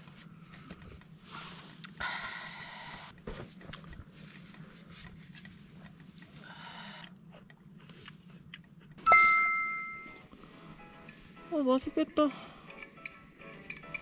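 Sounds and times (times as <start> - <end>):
tableware clink ringing: 9.1 - 10.2.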